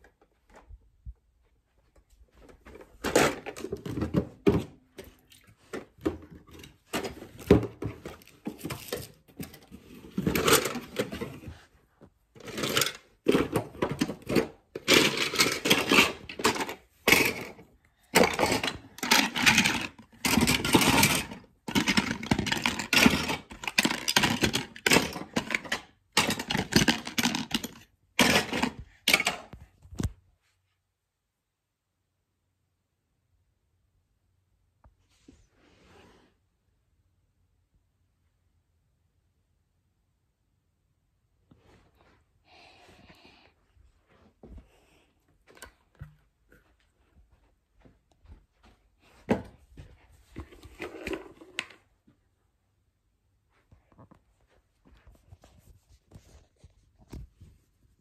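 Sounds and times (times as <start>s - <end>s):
plastic bricks clattering into bin: 5.6s - 11.6s, 12.4s - 29.6s.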